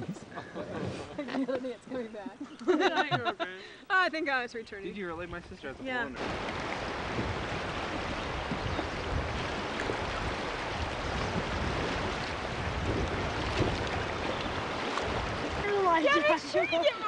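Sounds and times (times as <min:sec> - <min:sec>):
wind: 0:00.0 - 0:17.0
river water rushing: 0:06.2 - 0:17.0.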